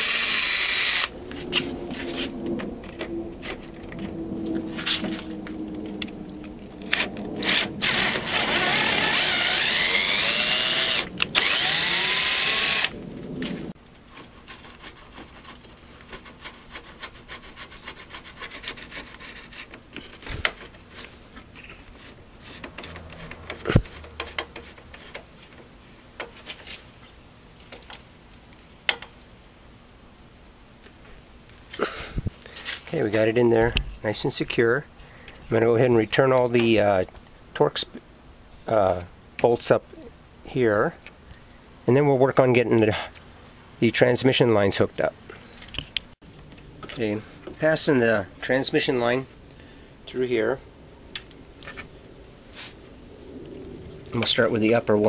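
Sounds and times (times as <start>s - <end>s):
cordless drill motor whine: 0.0s - 1.2s, 3.8s - 13.0s.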